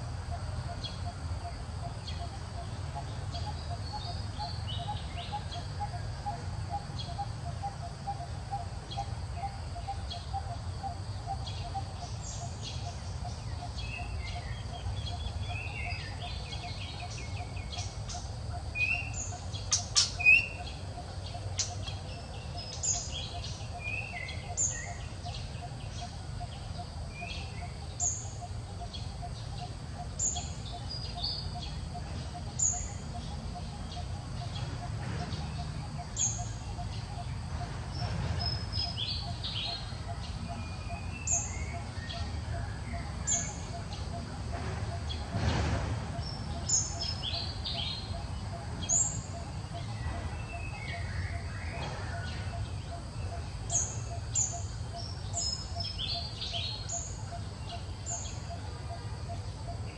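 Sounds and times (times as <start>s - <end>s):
birds chirping: 0.0s - 59.9s.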